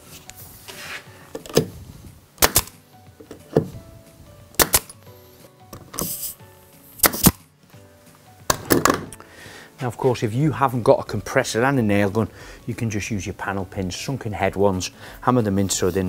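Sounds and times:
pneumatic nail gun firing: 2.4s - 2.8s, 4.6s - 5.0s, 7.0s - 7.4s.

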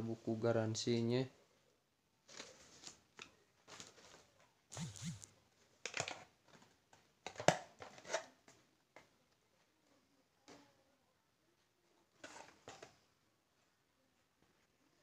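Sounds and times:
cardboard and plastic rustling: 2.2s - 4.4s.

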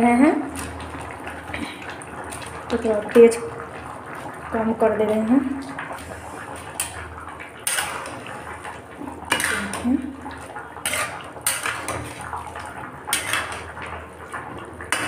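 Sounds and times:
spatula scraping metal pan: 7.6s - 8.2s, 9.3s - 10.0s, 10.8s - 12.1s, 13.1s - 13.7s.

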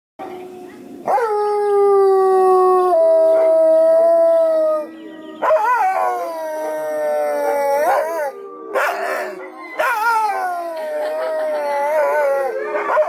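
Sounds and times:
wolves howling: 0.2s - 13.0s.

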